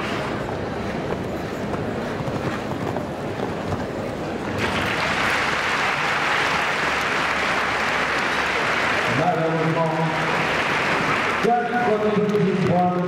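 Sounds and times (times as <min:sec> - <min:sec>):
arena crowd noise: 0:03.1 - 0:13.0
crowd applauding: 0:04.6 - 0:13.0.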